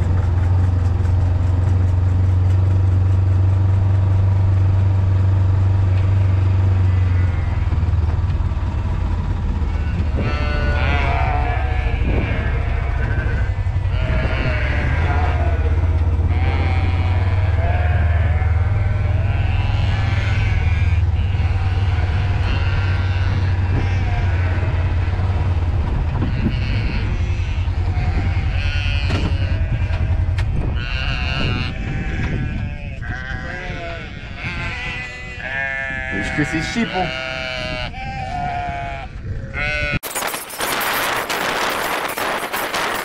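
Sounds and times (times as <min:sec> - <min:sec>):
steady low rumble: 0:00.0 - 0:43.0
sheep bleating: 0:06.0 - 0:07.8, 0:09.6 - 0:25.3, 0:26.2 - 0:40.1.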